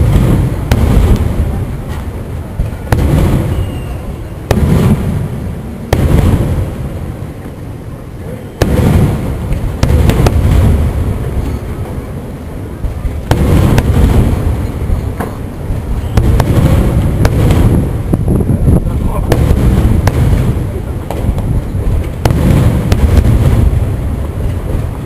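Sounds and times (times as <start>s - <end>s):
low rolling rumble: 0.0s - 25.0s
firework shells bursting: 8.6s - 12.0s, 12.7s - 25.0s.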